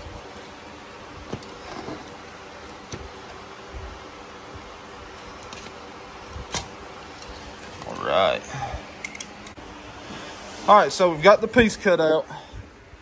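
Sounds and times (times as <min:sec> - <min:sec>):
steady hiss: 0:07.9 - 0:13.0.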